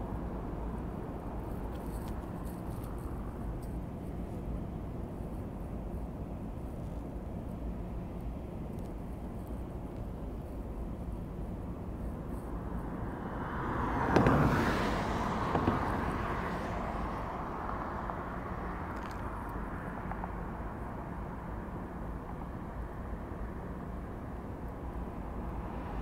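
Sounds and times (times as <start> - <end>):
traffic rumble: 0.0 - 26.0
vehicle passing close by: 13.0 - 18.6.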